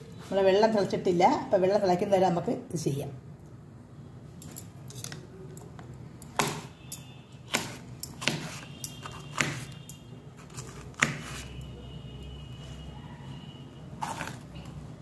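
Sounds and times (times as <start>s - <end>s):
knife striking cutting board: 7.5s - 9.8s.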